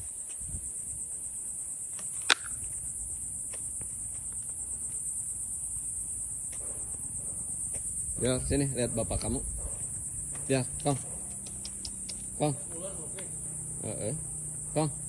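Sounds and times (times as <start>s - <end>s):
high-pitched insect chorus: 0.0s - 15.0s
sharp click: 2.2s - 2.6s.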